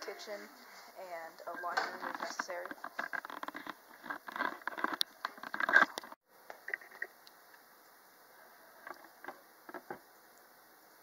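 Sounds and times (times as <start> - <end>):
muffled noise: 0.0 - 6.9
room hiss: 6.2 - 11.0.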